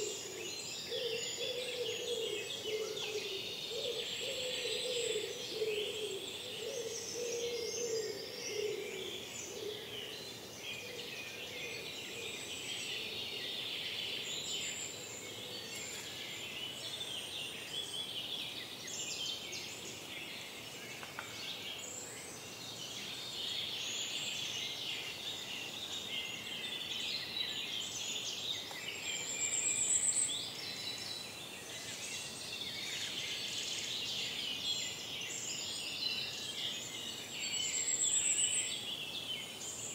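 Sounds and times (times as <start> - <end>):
songbirds singing: 0.0 - 39.9.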